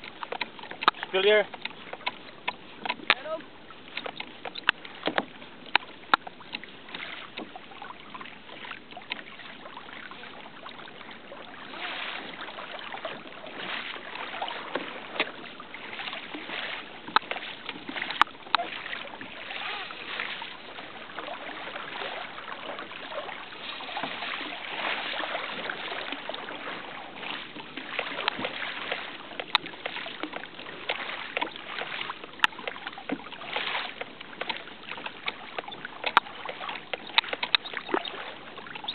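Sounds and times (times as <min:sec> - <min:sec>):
sharp clicks and knocks: 0:00.0 - 0:03.2, 0:03.9 - 0:06.6, 0:35.3 - 0:36.3, 0:36.9 - 0:38.0
water lapping against a kayak: 0:00.0 - 0:38.9.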